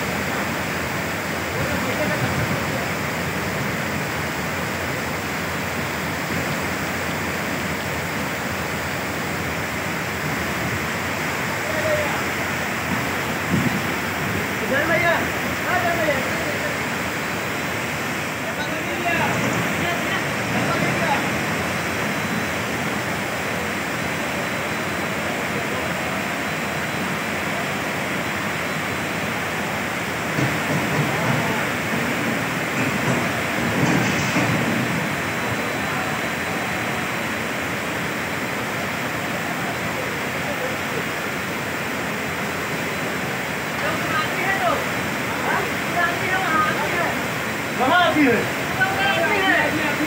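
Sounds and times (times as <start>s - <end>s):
floodwater rushing: 0.0s - 50.0s.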